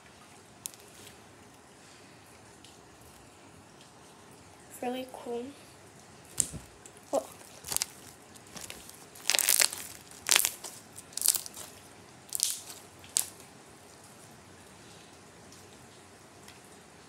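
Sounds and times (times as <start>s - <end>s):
slime squelching and popping: 0.6s - 1.0s, 6.3s - 13.4s.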